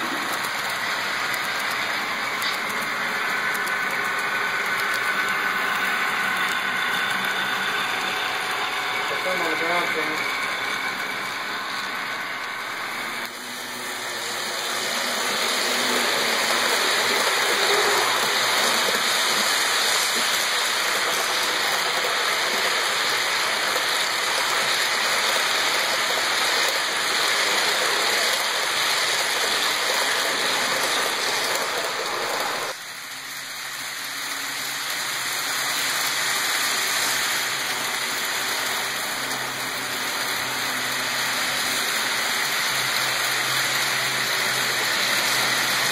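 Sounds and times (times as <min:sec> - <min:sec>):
model train wheels rattling on rails: 0:00.0 - 0:45.9.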